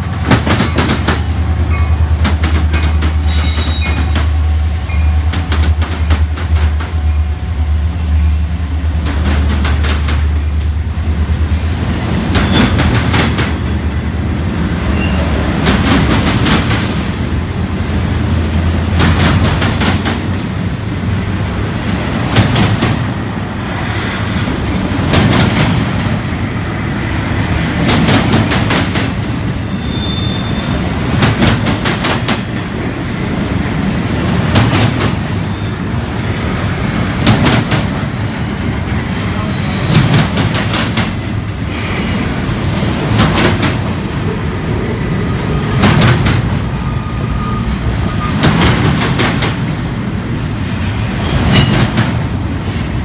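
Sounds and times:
train rumbling past: 0.0s - 53.0s
train wheel clicks on rails: 0.2s - 4.5s, 5.2s - 7.1s, 9.0s - 10.7s, 18.8s - 20.4s, 31.1s - 32.8s, 34.3s - 35.4s, 37.2s - 38.1s, 39.9s - 41.6s, 42.8s - 44.0s, 45.8s - 46.6s, 48.3s - 50.0s, 50.6s - 52.4s.

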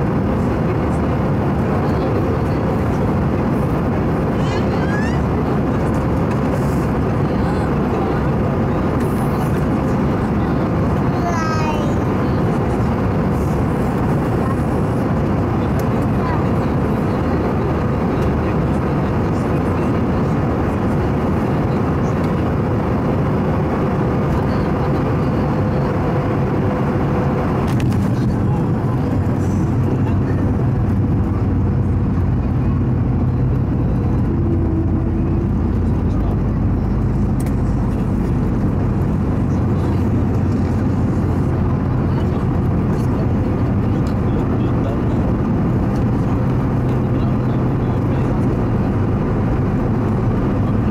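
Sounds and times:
cabin airflow and jet engine noise: 0.0s - 50.9s
deep landing roll rumble: 22.6s - 50.9s.

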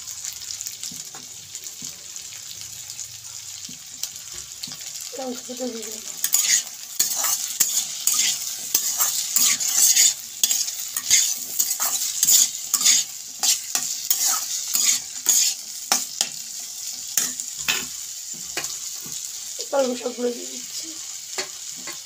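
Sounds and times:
oil sizzling: 0.0s - 22.0s
metal spatula scraping wok: 5.8s - 19.3s.

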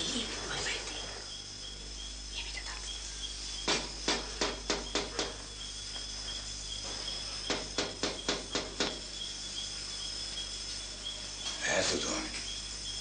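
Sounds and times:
crickets chirping: 0.0s - 13.0s
rapid sharp knocks: 3.6s - 5.4s, 7.5s - 9.1s.

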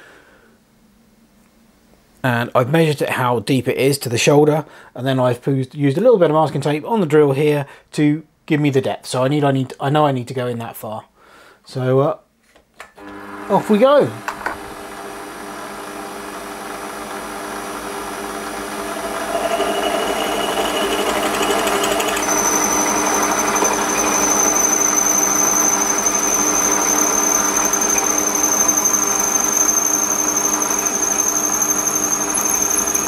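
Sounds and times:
lathe machine hum: 13.0s - 33.0s
drill bit cutting metal: 17.2s - 33.0s
high drill squeal: 18.0s - 33.0s.

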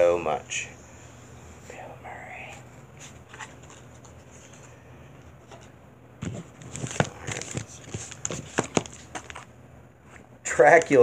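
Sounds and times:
packaging crinkling: 6.2s - 9.5s.

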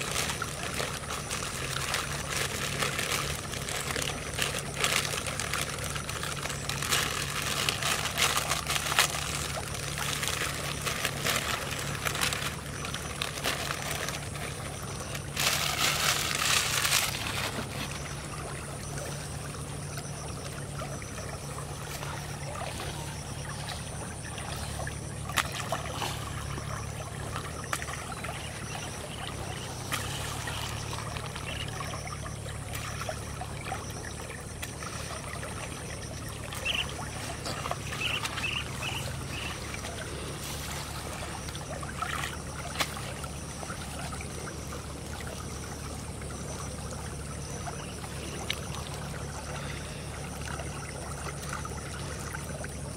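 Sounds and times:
low hum: 0.0s - 52.9s
stream flowing and trickling: 0.0s - 52.9s.

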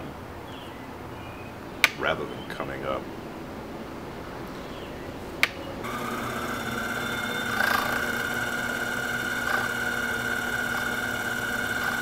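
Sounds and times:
cutter scraping wood: 5.8s - 12.0s
lathe motor whining: 5.8s - 12.0s.

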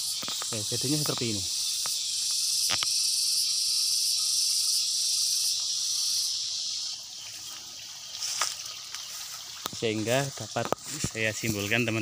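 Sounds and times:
insects chirring: 0.0s - 12.0s.

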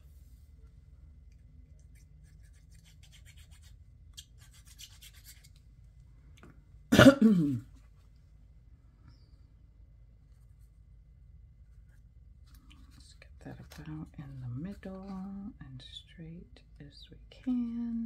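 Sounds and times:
paper scratching and rubbing: 1.8s - 5.6s
person coughing: 6.9s - 7.7s.

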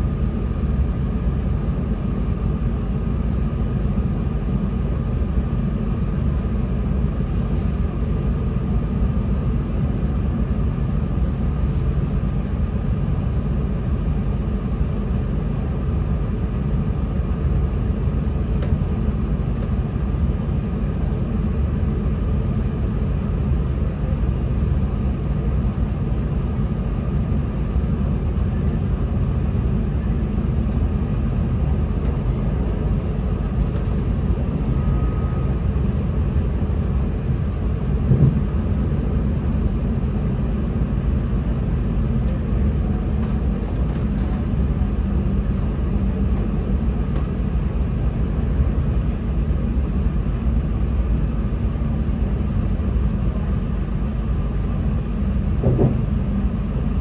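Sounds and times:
train diesel engine rumble: 0.0s - 57.0s
train wheels on track: 18.0s - 50.3s, 53.2s - 57.0s
brief thump: 38.1s - 38.4s, 55.6s - 56.0s.

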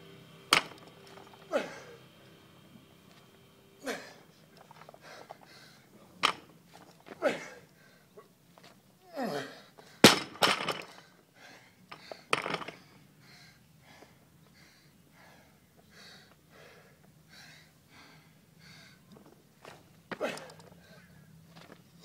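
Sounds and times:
barbell crashing onto mat: 0.5s - 0.8s, 10.0s - 10.9s
man groaning: 1.4s - 2.0s, 9.1s - 9.6s.

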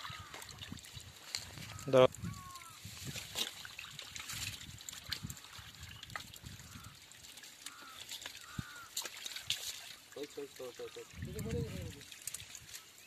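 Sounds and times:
water trickling: 0.0s - 13.0s
fish flapping in a wet net: 2.4s - 10.2s, 11.8s - 13.0s.

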